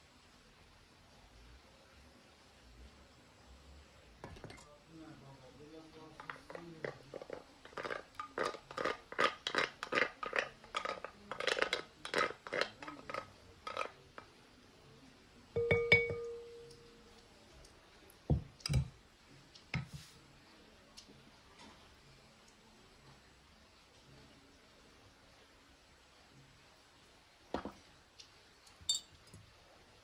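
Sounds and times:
wooden spoon scraping bowl: 6.1s - 14.0s
dishes clinking: 15.6s - 16.8s, 28.8s - 29.4s.

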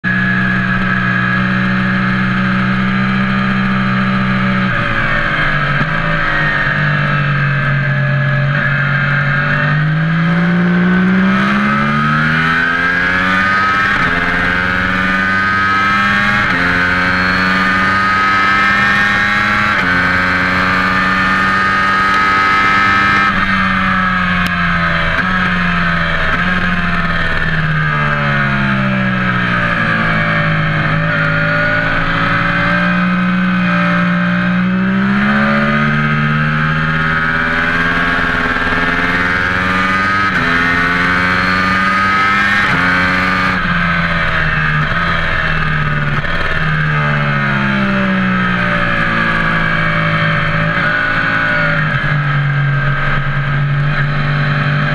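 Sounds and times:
vehicle engine running: 0.0s - 54.9s.

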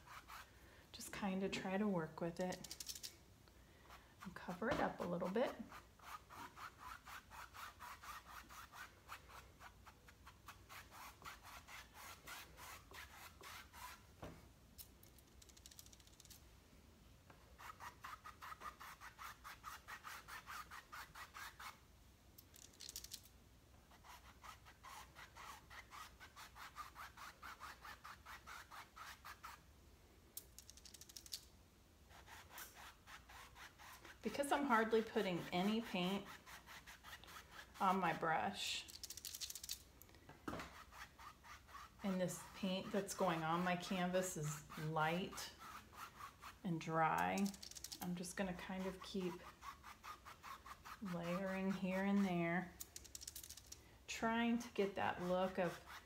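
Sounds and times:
paintbrush scrubbing canvas: 0.0s - 0.5s, 3.9s - 14.1s, 17.6s - 21.8s, 23.9s - 29.6s, 32.1s - 39.7s, 40.6s - 53.2s, 54.8s - 56.0s.

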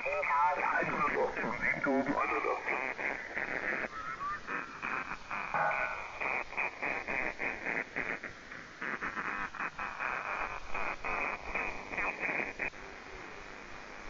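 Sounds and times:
single-sideband radio voice: 0.0s - 4.8s, 5.5s - 6.6s
receiver hiss: 0.0s - 14.0s.

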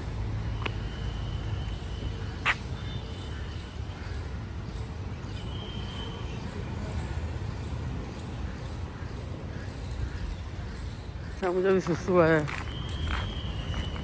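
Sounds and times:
low rumble of wind: 0.0s - 14.0s
footsteps on stone paving: 1.7s - 2.8s, 11.4s - 14.0s.

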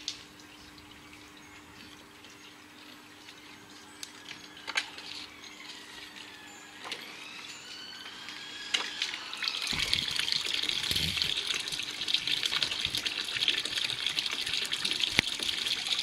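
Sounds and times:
water rushing and splashing: 8.2s - 15.6s.

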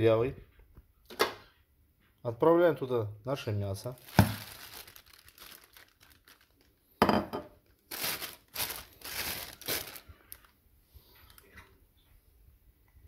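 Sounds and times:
plastic bag crinkling: 3.8s - 7.0s, 7.6s - 10.5s, 11.1s - 11.5s.

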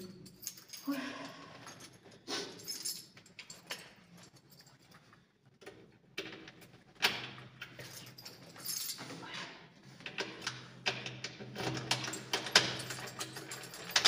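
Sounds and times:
keys jangling: 0.0s - 5.3s, 7.6s - 9.1s, 11.8s - 14.0s.

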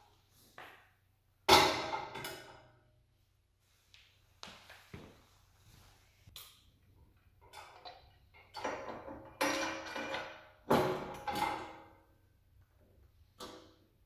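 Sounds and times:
metal clanks and knocks: 7.4s - 12.0s.

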